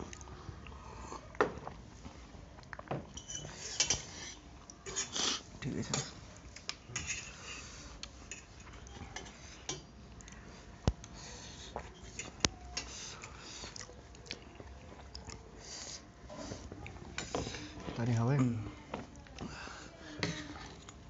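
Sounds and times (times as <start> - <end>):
soft chewing: 0.0 - 21.0
cutlery scraping on metal plates: 3.2 - 6.2, 6.9 - 7.7, 20.1 - 21.0.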